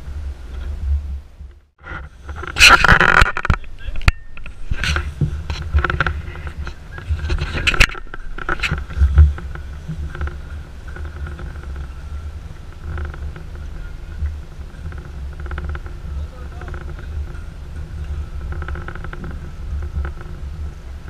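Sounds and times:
wind rumble on microphone: 0.0s - 21.0s
outboard motor running: 4.4s - 21.0s.

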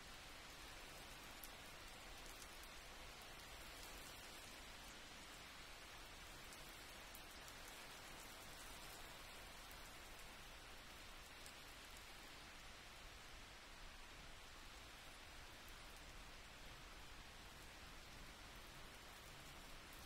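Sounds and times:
faint steady hiss: 0.0s - 20.0s
light ticks: 1.2s - 2.8s.

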